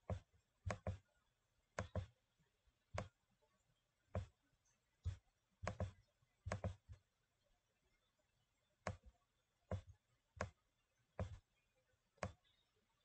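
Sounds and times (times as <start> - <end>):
computer mouse clicking: 0.0 - 1.0, 1.8 - 2.1, 2.9 - 3.2, 5.0 - 7.0, 8.8 - 9.1, 9.7 - 10.6, 12.2 - 12.5.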